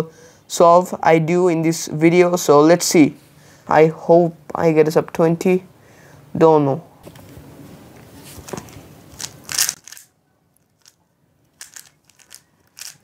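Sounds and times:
puzzle cube clicking: 9.2s - 13.0s.

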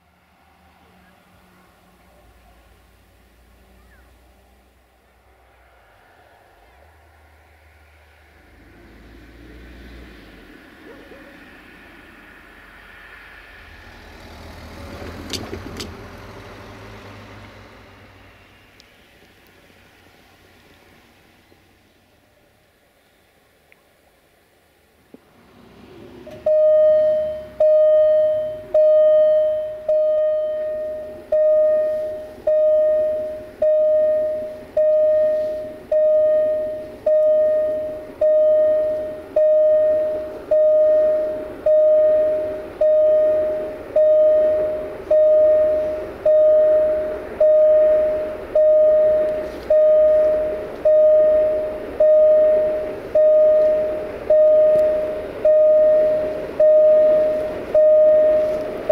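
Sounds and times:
level crossing warning bell: 26.3s - 58.9s.

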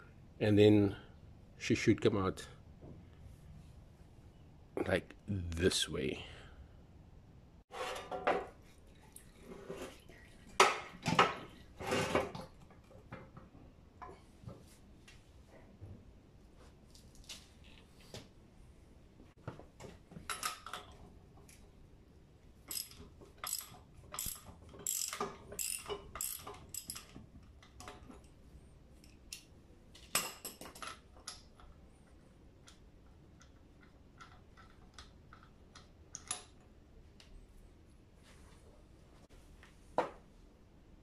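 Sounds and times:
socket ratchet clicking: 22.7s - 27.1s.

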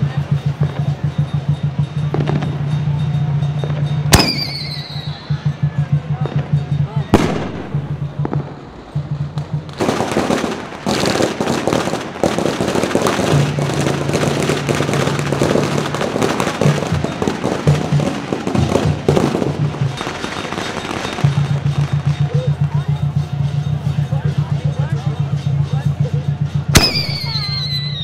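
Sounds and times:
firecrackers crackling: 0.0s - 28.0s
loud firework pops: 3.6s - 5.3s, 7.1s - 22.6s, 26.7s - 27.9s.

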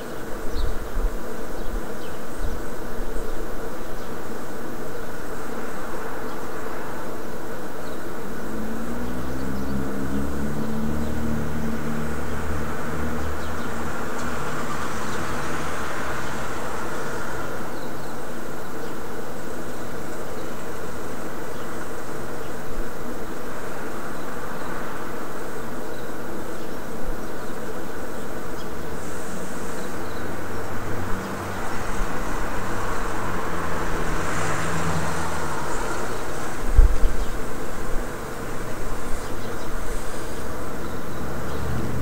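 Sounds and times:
buzzing street ambience: 0.0s - 42.0s
low vehicle rumble: 8.2s - 17.7s, 29.3s - 42.0s.

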